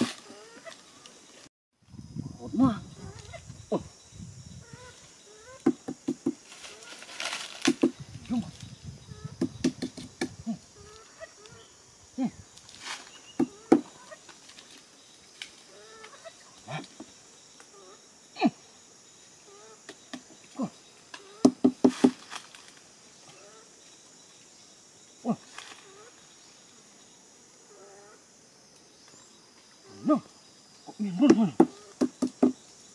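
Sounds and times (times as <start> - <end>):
high insect drone: 0.0 - 32.9
sharp knocks and clicks: 31.3 - 32.6.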